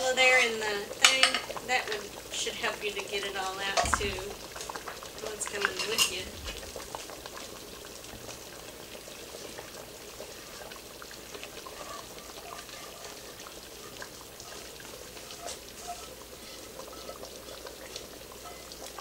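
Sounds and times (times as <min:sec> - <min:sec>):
simmering pot: 0:00.0 - 0:19.0
liquid pouring into a pot: 0:03.6 - 0:19.0
spatula scraping and tapping a pan: 0:15.2 - 0:19.0.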